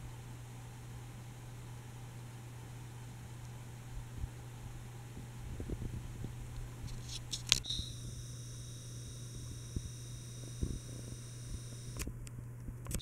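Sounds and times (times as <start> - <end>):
ceiling fan motor humming: 0.0 - 13.0
sharp clicks: 9.0 - 12.1.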